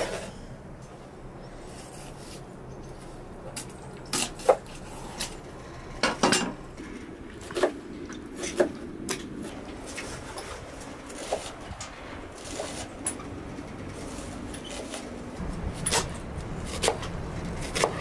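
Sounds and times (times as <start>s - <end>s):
knife chopping on wooden board: 16.7s - 18.0s.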